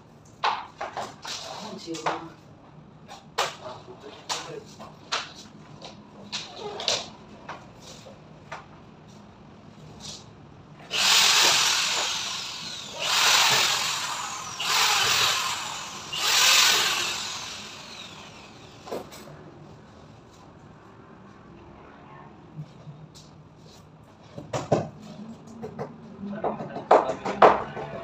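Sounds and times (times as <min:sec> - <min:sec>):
power drill whirring: 0:10.9 - 0:18.9.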